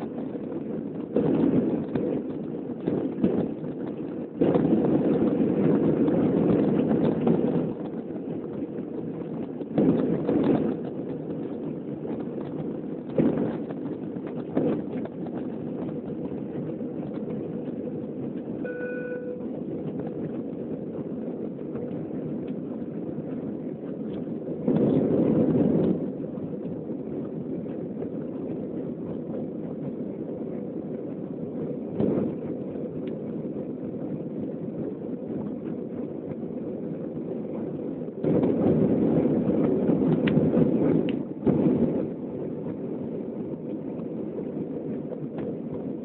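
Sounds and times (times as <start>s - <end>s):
jet engines and airflow rush: 0.0s - 46.0s
faint beep: 18.6s - 19.6s.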